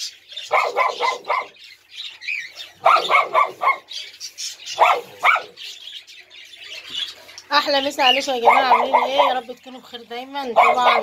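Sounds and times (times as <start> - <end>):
small dogs barking: 0.4 - 1.7, 2.8 - 4.0, 4.7 - 5.6, 8.4 - 9.4, 10.4 - 11.0.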